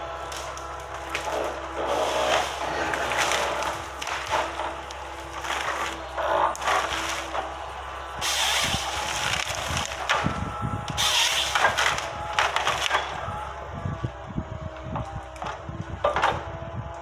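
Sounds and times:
machine engine running: 0:00.0 - 0:17.0
wood cracking and splintering: 0:00.0 - 0:17.0.

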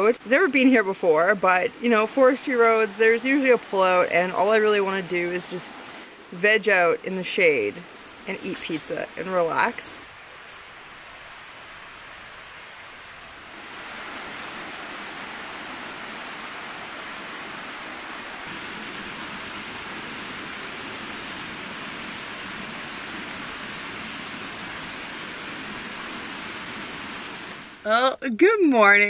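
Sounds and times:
river flowing over rocks: 0:08.8 - 0:27.8.

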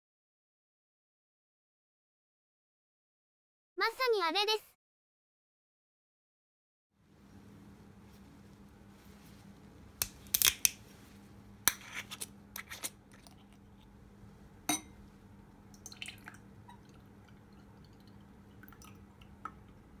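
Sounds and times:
drink pouring into glass: 0:15.7 - 0:19.8.

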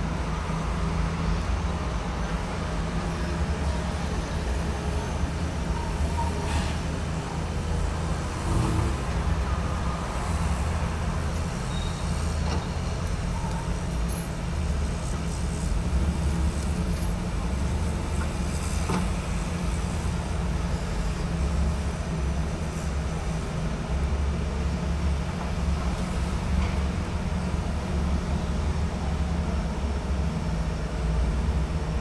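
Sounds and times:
heavy vehicle engines idling: 0:00.0 - 0:32.0
road traffic noise: 0:00.0 - 0:32.0.

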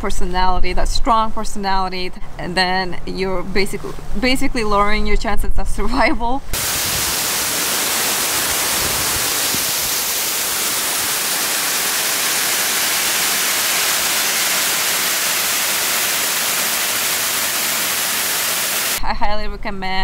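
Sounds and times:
water pouring over spillway: 0:06.6 - 0:19.0.

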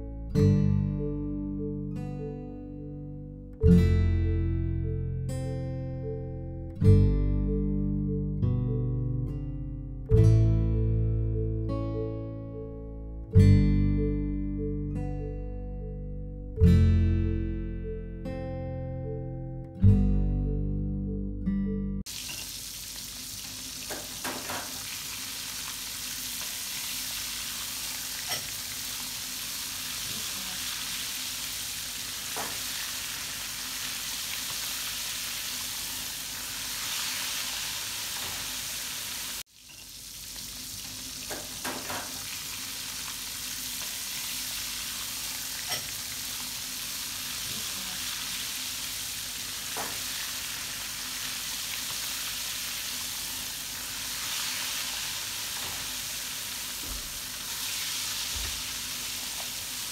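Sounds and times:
fish deep-frying in oil: 0:22.1 - 0:59.9.

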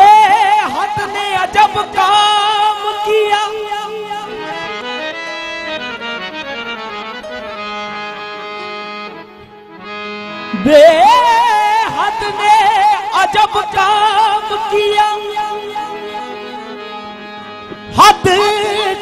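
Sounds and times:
person singing: 0:00.0 - 0:04.7, 0:10.5 - 0:16.8, 0:17.9 - 0:19.0
harmonium melody: 0:00.0 - 0:19.0.

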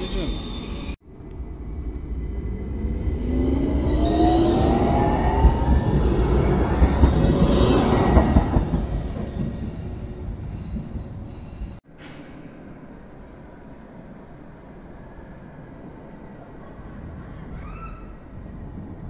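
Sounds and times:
tram motor whine: 0:00.0 - 0:11.8
wheels rumbling on rails: 0:00.0 - 0:19.0
tram knocks: 0:05.4 - 0:09.7.

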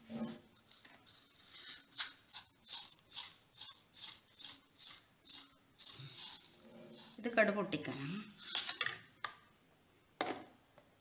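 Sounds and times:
seeds rattling into metal jar: 0:00.6 - 0:08.9.

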